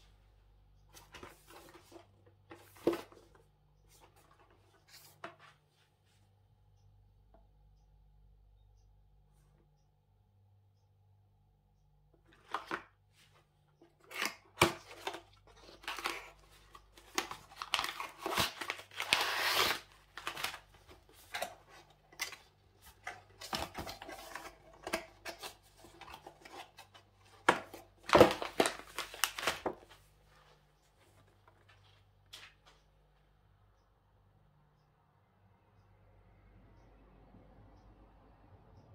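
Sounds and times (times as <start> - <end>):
packaging rustling and tearing: 14.0 - 30.0.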